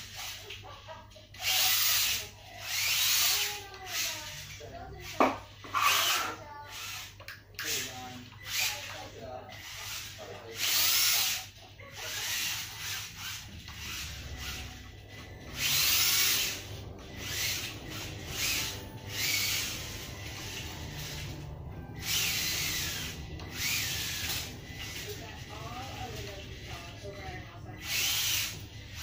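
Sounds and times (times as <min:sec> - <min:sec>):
small electric motor whining: 0:00.0 - 0:29.0
tyres scrubbing on tile floor: 0:02.0 - 0:07.1.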